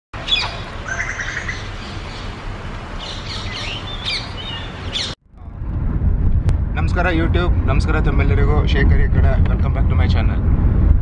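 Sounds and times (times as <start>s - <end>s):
birds chirping and whistling: 0.2s - 2.4s, 3.0s - 5.2s
road noise inside moving car: 0.2s - 11.0s.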